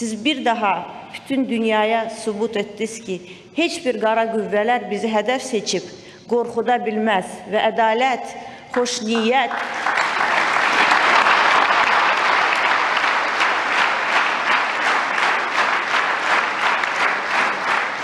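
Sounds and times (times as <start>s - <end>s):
audience clapping: 8.8s - 18.0s.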